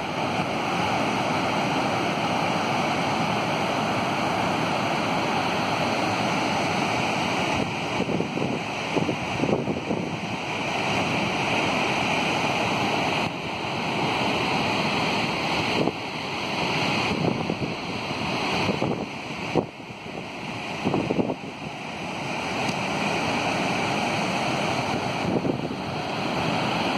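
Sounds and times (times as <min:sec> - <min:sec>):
waterfall rushing over rocks: 0:00.0 - 0:26.9
wind buffeting microphone: 0:06.7 - 0:26.9.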